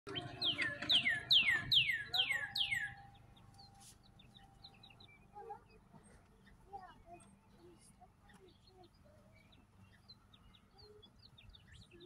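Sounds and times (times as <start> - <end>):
songbird whistling descending notes: 0.1 - 3.2.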